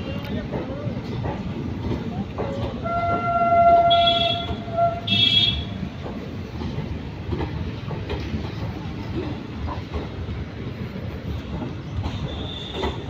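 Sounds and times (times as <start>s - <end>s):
moving train rumble: 0.0s - 13.0s
train horn: 2.8s - 5.8s, 12.3s - 13.0s
short high horn blasts: 2.9s - 5.7s.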